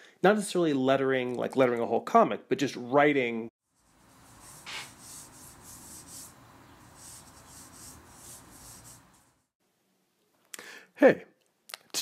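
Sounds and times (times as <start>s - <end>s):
paintbrush strokes on paper: 3.6s - 9.6s.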